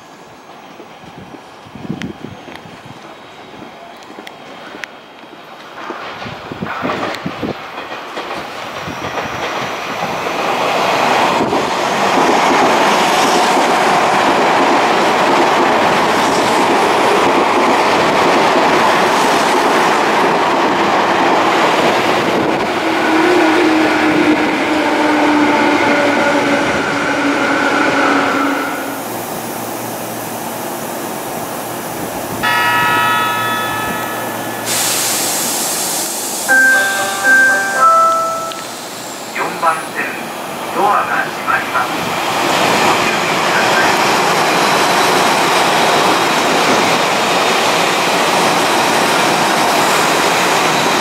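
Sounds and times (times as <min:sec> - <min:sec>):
train wheels on rail: 0:00.0 - 0:51.0
train braking whine: 0:32.3 - 0:40.3.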